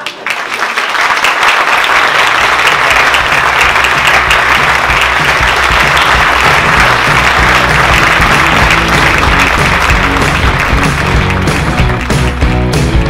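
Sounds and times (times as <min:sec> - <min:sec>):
audience applauding: 0:00.0 - 0:13.0
music: 0:03.0 - 0:13.0.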